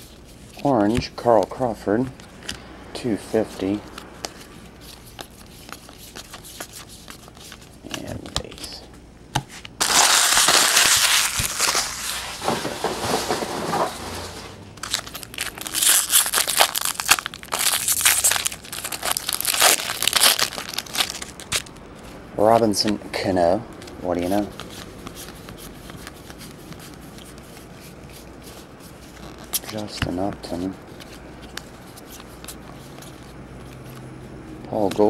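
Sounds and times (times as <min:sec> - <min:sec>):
card handling: 0:03.4 - 0:08.8, 0:09.4 - 0:23.0, 0:23.7 - 0:34.2
foil wrapper crinkling and tearing: 0:09.8 - 0:13.2, 0:14.8 - 0:21.7.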